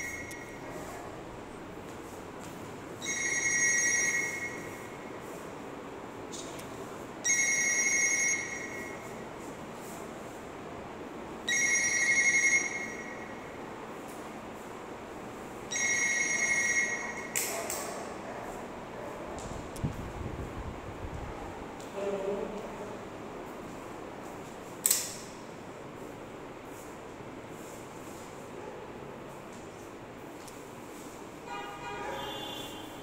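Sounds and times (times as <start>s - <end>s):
telephone ringing: 3.0s - 5.0s, 7.2s - 9.1s, 11.4s - 13.6s, 15.7s - 17.4s.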